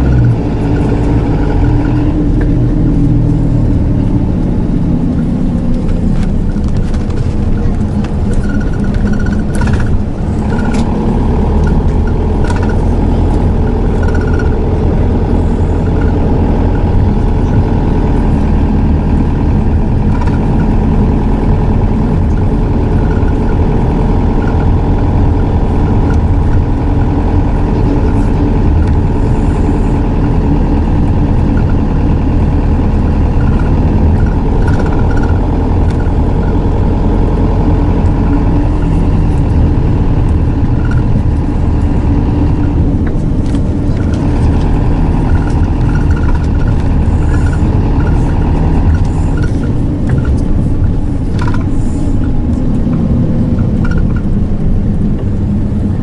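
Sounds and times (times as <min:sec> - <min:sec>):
diesel engine running: 0:00.0 - 0:56.0
light clicks and rattles: 0:37.4 - 0:54.4.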